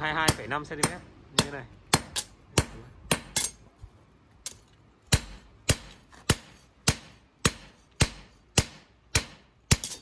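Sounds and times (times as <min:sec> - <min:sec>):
hammer striking steel on anvil: 0:00.0 - 0:03.6, 0:05.1 - 0:10.0.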